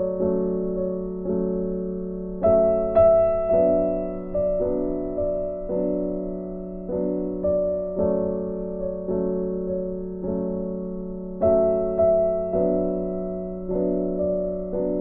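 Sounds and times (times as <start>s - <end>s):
slow keyboard chords: 0.0s - 15.0s.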